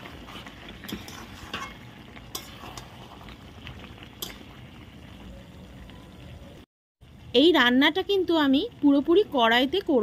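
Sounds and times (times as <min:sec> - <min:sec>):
spatula scraping a metal pan: 0:00.0 - 0:03.4
curry sizzling in a pan: 0:00.0 - 0:10.0.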